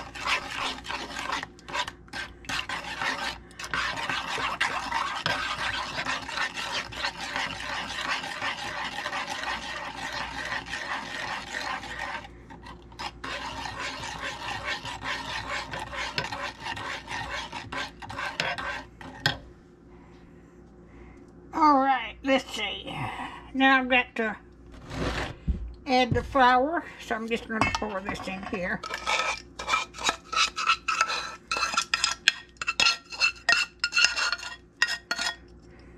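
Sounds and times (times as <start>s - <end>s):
spoon scraping and clinking in pan: 27.5s - 35.5s.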